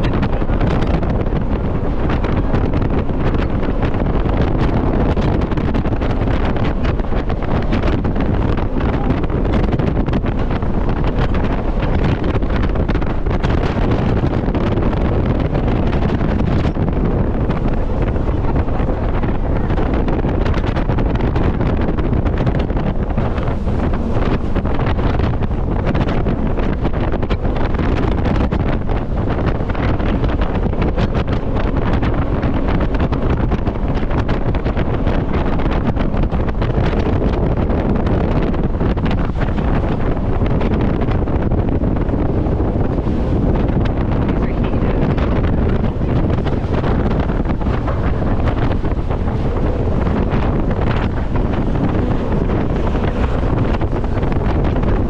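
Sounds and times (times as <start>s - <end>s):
boat engine running: 0.0s - 55.0s
water rushing: 0.0s - 55.0s
wind buffeting microphone: 0.0s - 55.0s.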